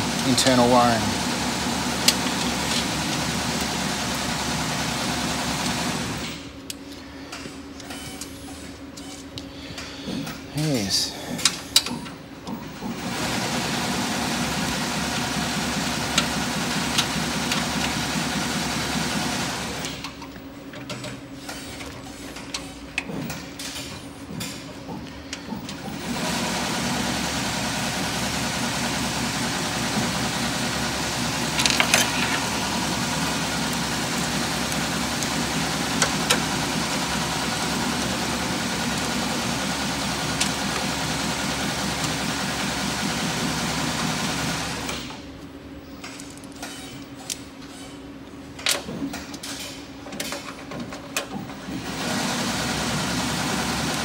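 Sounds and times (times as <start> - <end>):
machinery humming: 0.0 - 23.6, 24.2 - 45.8, 51.4 - 54.0
clicks and rustles of cables: 31.6 - 32.5.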